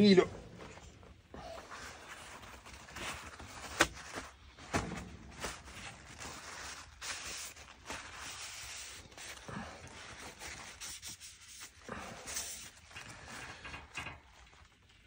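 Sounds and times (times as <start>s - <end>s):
paper towel rustling on knife: 5.1s - 12.8s.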